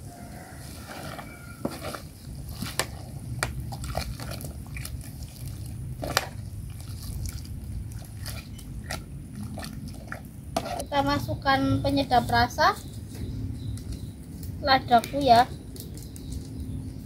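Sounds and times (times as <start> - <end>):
water boiling: 0.0 - 11.4
steady low rumble: 2.0 - 17.0.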